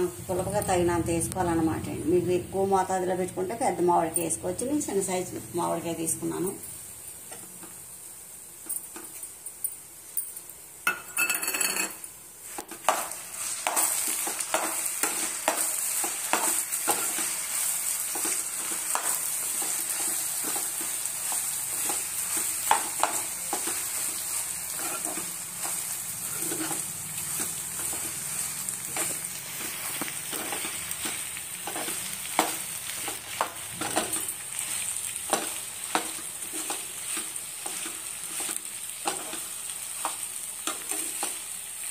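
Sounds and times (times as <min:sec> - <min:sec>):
leaves sizzling in oil: 0:00.0 - 0:10.9, 0:11.9 - 0:41.9
spoon scraping a pan: 0:11.4 - 0:41.6.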